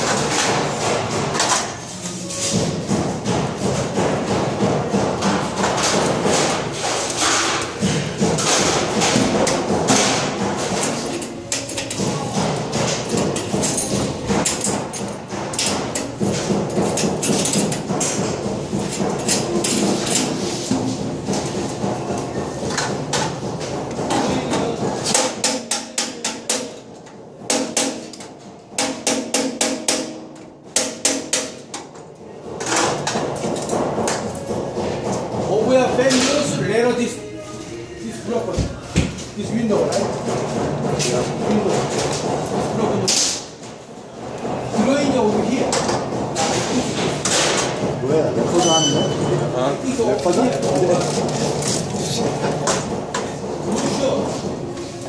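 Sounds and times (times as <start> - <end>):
tool thudding on sheet metal: 2.5 - 11.1, 11.9 - 36.6
hammer tapping metal: 7.2 - 32.0.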